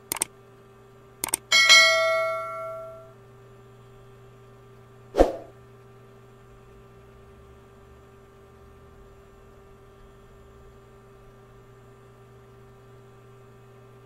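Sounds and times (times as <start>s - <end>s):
steady low hum: 0.0s - 14.0s
bell chime ringing: 1.5s - 3.1s.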